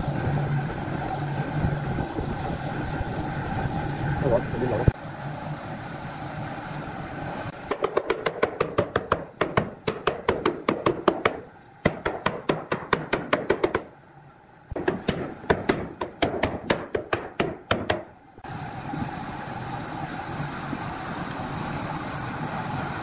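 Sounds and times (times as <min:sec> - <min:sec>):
wooden block knocking on wood: 0:07.7 - 0:13.9.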